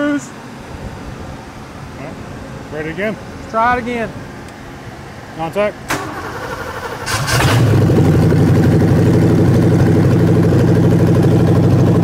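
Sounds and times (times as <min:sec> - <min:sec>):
engine starting and idling: 0:05.9 - 0:12.0.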